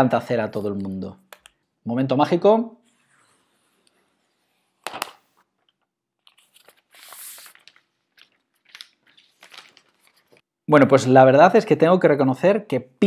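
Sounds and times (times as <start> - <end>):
plastic film crinkling peel: 6.2 - 10.4.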